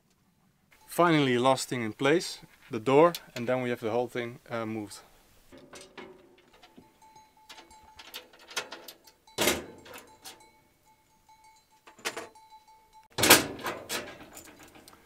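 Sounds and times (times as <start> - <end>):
metal cabinet door clicks and clanks: 5.6 - 6.8, 7.5 - 10.4, 11.9 - 12.3, 13.1 - 15.0.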